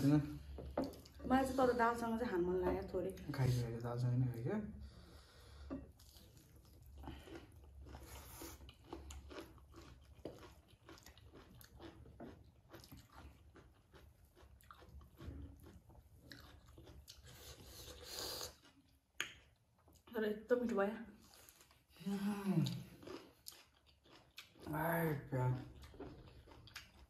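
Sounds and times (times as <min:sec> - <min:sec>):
chewing food: 0:00.0 - 0:03.6, 0:05.5 - 0:20.1, 0:21.1 - 0:27.0.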